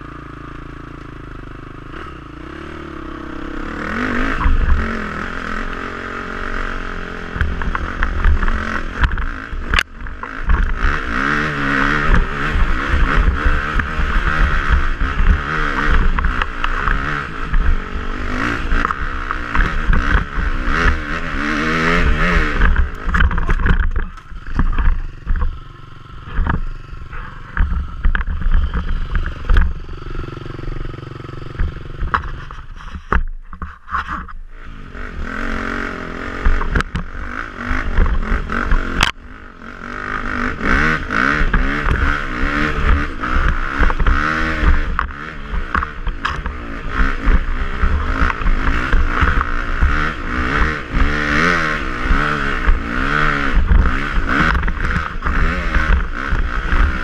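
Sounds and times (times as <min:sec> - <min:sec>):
motorcycle engine revving: 0:00.0 - 0:57.0
bike knocking over rough ground: 0:22.6 - 0:29.9.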